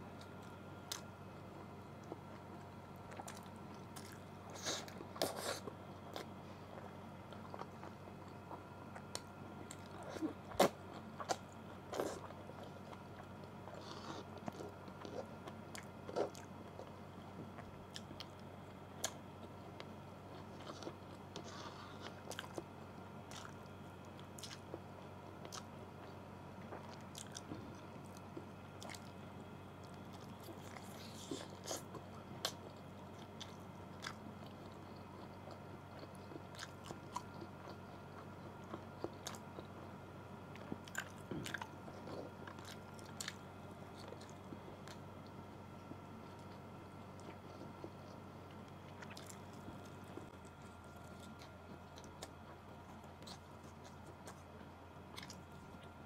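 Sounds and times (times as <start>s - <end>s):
person biting and chewing: 55.1s - 55.9s.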